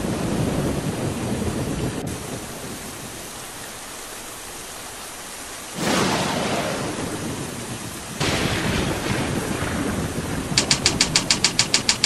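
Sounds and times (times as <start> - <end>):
rain falling: 0.0 - 12.0
thunder rumble: 5.7 - 12.0.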